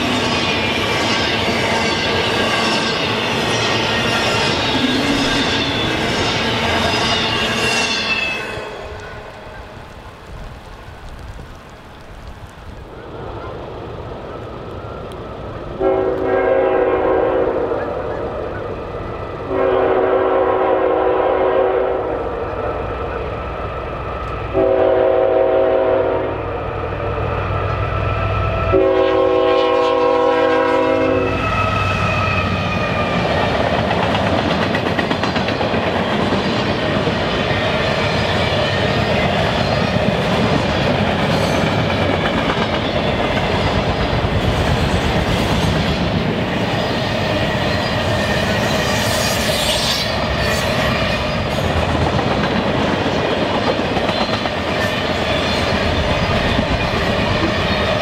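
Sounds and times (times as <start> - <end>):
locomotive air horn: 15.8 - 17.9, 19.5 - 22.3, 24.5 - 26.5, 28.6 - 32.3
train wheels clattering: 31.5 - 58.0.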